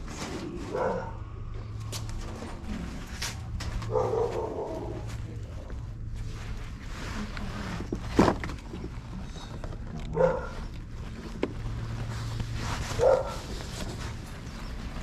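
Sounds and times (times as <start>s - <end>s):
dog barking: 0.7s - 1.3s, 3.8s - 5.1s, 10.1s - 10.7s, 12.9s - 13.6s.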